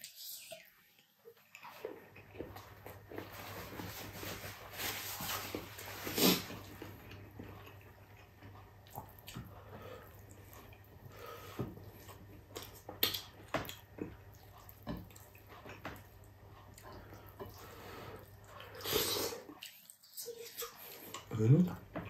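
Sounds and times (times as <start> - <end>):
wet chewing: 6.1 - 21.8.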